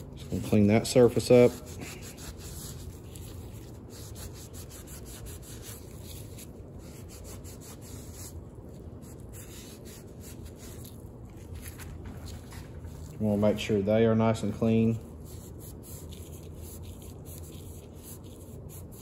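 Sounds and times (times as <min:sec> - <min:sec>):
cloth rubbing on metal: 0:00.0 - 0:13.9.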